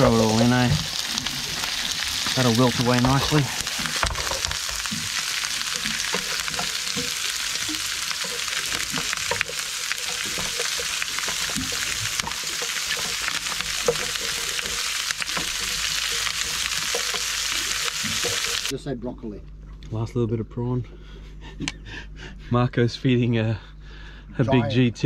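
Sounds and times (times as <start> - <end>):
prawns sizzling in frying pan: 0.0 - 18.7
utensils scraping pan: 1.6 - 18.7.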